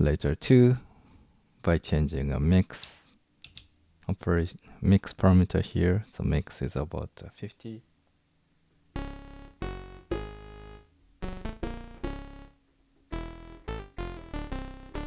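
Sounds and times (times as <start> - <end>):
synthesizer short notes: 9.0 - 15.0.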